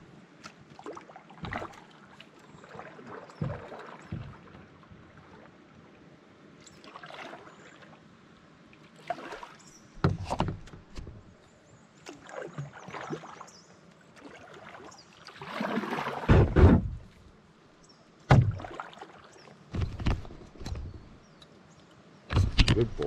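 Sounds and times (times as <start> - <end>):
paddle swishing in water: 0.0 - 8.0, 8.7 - 17.4, 18.3 - 21.2
sharp knocks: 16.3 - 17.1, 18.3 - 18.6.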